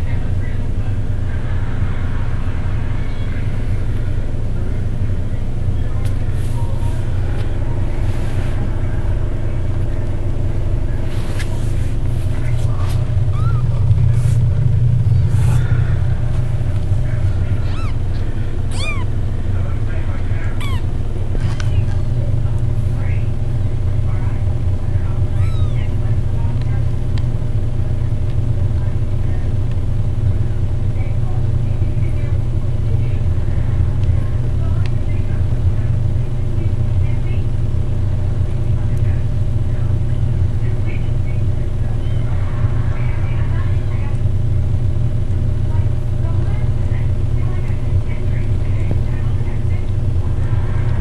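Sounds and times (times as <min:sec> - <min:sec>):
steady low hum: 0:00.0 - 0:51.0
steady low rumble: 0:00.0 - 0:51.0
kitten mewing: 0:13.2 - 0:13.9, 0:17.6 - 0:19.2, 0:20.5 - 0:21.0, 0:25.3 - 0:26.0.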